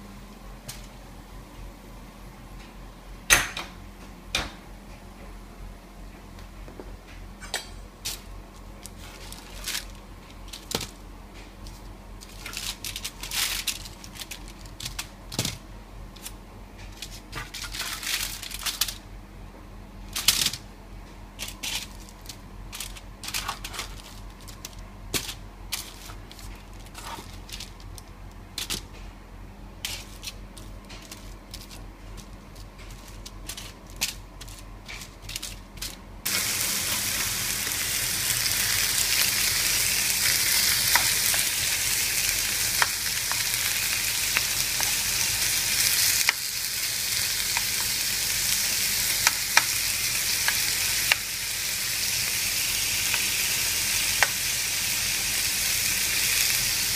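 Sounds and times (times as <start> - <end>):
low steady hum: 0.0 - 56.9
foil crinkling: 8.8 - 11.0, 11.7 - 15.3, 17.0 - 19.0, 21.4 - 28.8, 29.8 - 56.9
food sizzling in a pan: 36.3 - 56.9.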